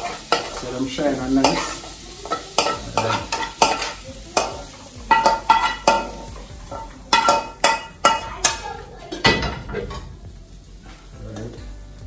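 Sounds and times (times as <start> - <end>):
metal spoon scraping frying pan: 0.0 - 10.1
vegetables sizzling: 0.0 - 12.0.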